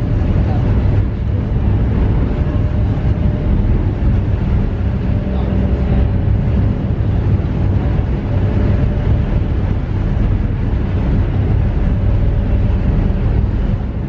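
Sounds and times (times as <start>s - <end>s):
ferry diesel engines droning: 0.0s - 14.0s
water wash: 0.0s - 14.0s
wind noise: 0.0s - 14.0s.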